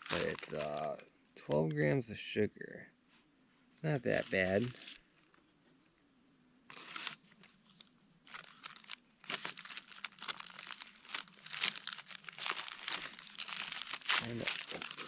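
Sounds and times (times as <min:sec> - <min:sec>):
wrapper crinkling and tearing: 0:00.0 - 0:01.0, 0:04.2 - 0:05.0, 0:06.7 - 0:15.0.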